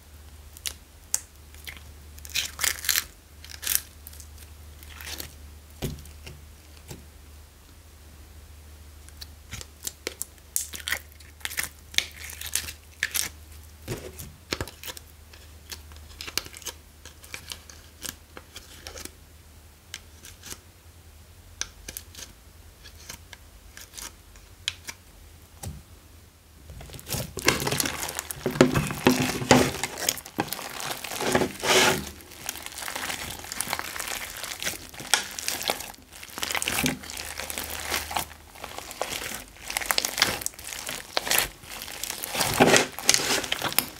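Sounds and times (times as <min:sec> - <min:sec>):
slime crackling and popping: 0:00.5 - 0:06.2, 0:26.7 - 0:43.9.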